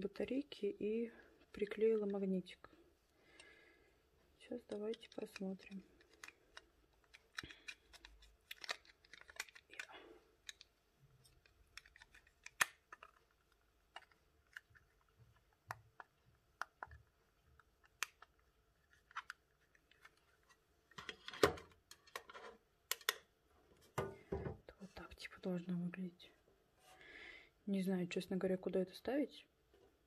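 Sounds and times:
rustling: 1.3s - 16.2s.

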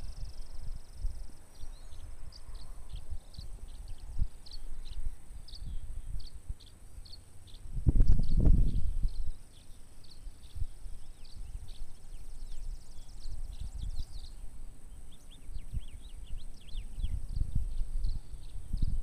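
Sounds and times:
wind buffeting microphone: 0.0s - 6.7s, 7.6s - 9.5s, 10.4s - 19.0s
small birds chirping: 0.0s - 19.0s.

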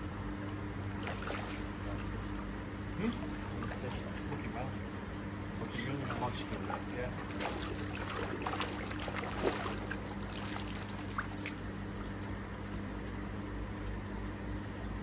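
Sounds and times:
steady low hum: 0.0s - 15.0s
water splashing and dripping: 6.0s - 12.1s.

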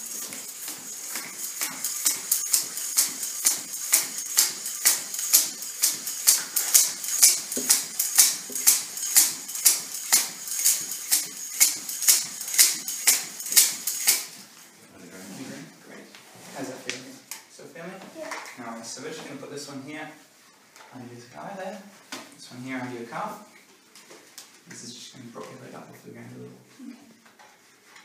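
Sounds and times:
hand pump hissing puffs: 0.0s - 14.6s.

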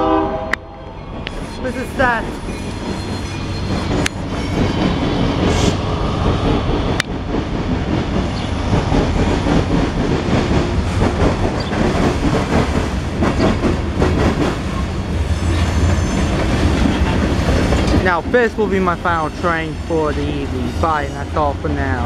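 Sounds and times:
train wheels rumbling on rail: 0.5s - 22.0s
clickety-clack over rail joints: 2.2s - 22.0s.

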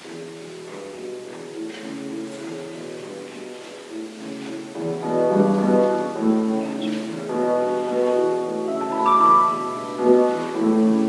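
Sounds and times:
accordion playing held chords: 8.6s - 10.9s.

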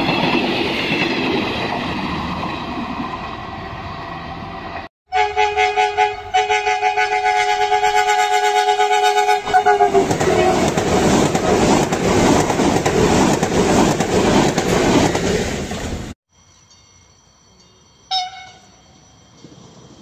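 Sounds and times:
train rushing past: 0.0s - 16.2s
train two-tone horn: 5.1s - 10.7s, 18.1s - 18.8s.

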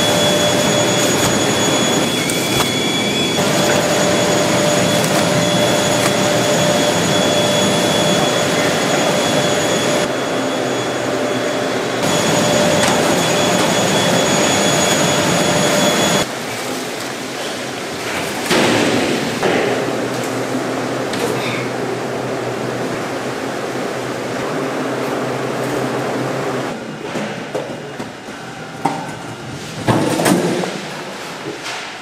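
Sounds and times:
factory machinery hiss: 0.0s - 16.3s
machinery whine: 0.0s - 32.0s.

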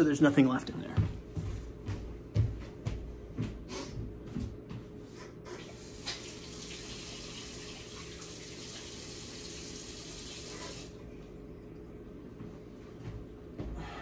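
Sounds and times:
tap water running into sink: 5.5s - 11.0s.

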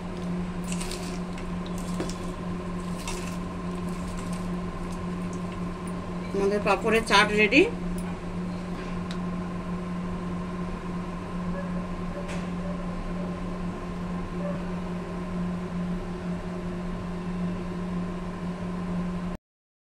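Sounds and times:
steady mechanical hum: 0.0s - 19.4s.

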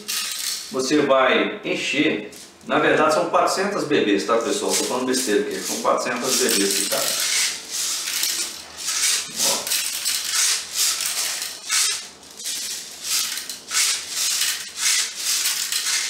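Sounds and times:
plastic pellets rattling: 0.0s - 0.7s, 4.7s - 16.0s.

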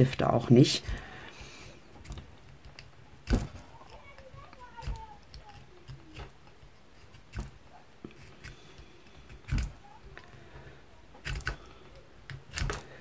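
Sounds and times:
pencil sharpener scraping: 0.7s - 10.2s.

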